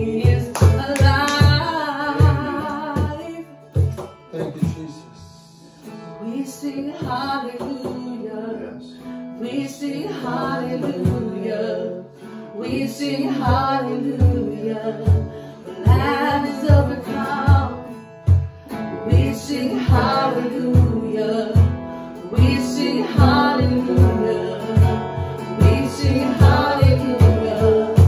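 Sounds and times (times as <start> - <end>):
steady drum beat: 0.0 - 3.2, 13.4 - 28.0
person singing: 0.0 - 3.5, 6.3 - 18.0, 18.8 - 28.0
guitar: 0.0 - 28.0.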